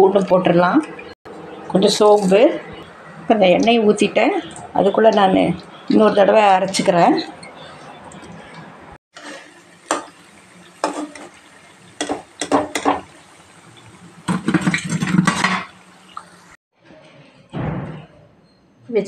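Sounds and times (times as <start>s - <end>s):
metal utensils clattering on pan: 9.2s - 10.2s, 10.8s - 13.1s, 14.3s - 15.8s.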